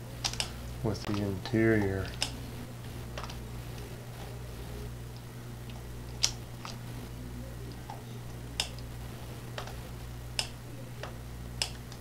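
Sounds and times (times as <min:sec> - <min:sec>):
low electrical hum: 0:00.0 - 0:12.0
computer mouse clicking: 0:00.2 - 0:02.4, 0:03.1 - 0:03.9, 0:05.1 - 0:06.8, 0:08.6 - 0:08.9, 0:09.5 - 0:12.0.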